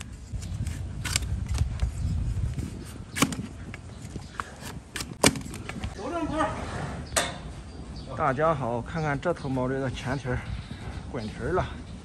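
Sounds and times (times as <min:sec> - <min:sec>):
knife cracking through hoof: 0:00.3 - 0:01.9, 0:02.5 - 0:05.9.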